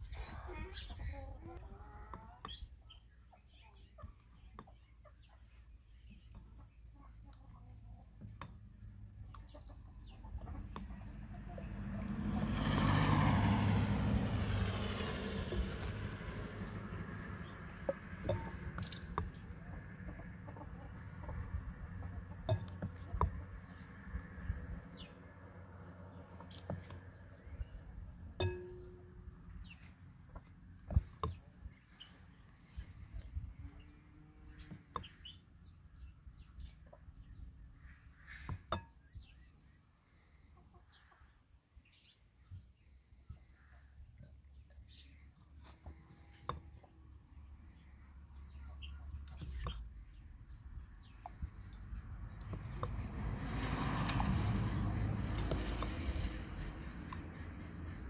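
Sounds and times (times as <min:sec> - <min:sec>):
chickens clucking: 0:00.0 - 0:13.0, 0:15.2 - 0:23.8, 0:40.4 - 0:41.4
birds chirping faintly: 0:00.0 - 0:58.0
vehicle passing by: 0:08.9 - 0:38.5, 0:45.0 - 0:58.0
wooden ladle knocking on glass bowl: 0:28.4 - 0:29.1.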